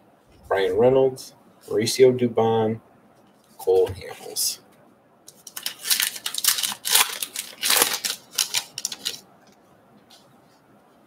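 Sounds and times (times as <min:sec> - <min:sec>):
wrapper tearing and crinkling: 0:05.3 - 0:09.2.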